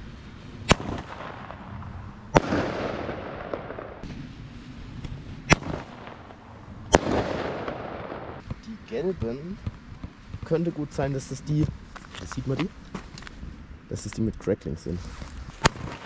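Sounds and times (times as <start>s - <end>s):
firework bursting in sky: 0.0s - 11.3s, 15.6s - 16.0s
firework launching bang: 0.7s - 4.2s, 5.5s - 8.5s.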